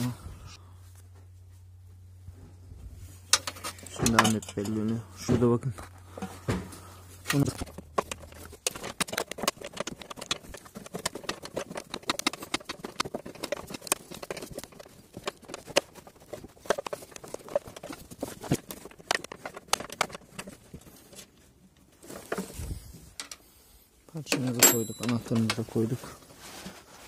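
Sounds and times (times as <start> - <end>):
small metal knocks: 3.3 - 5.5, 24.4 - 25.6.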